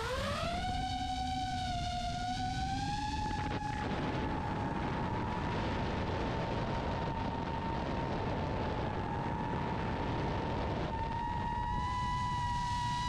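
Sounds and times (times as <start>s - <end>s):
drone motors whining: 0.0s - 13.0s
wind rush and propeller wash: 0.0s - 13.0s.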